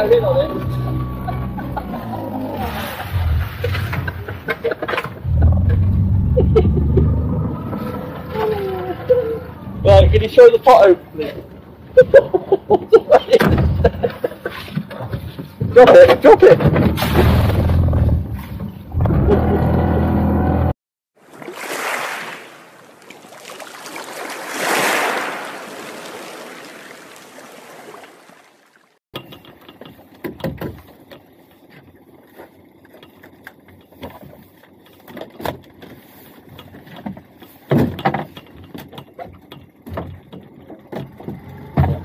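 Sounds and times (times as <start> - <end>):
knocks and thumps on boat: 13.3 - 19.2, 29.2 - 42.0
wind and water noise: 21.2 - 42.0.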